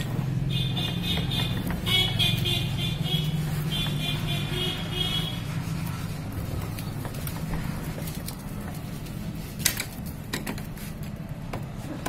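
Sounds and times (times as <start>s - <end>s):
vehicle engine idling: 0.0s - 9.6s.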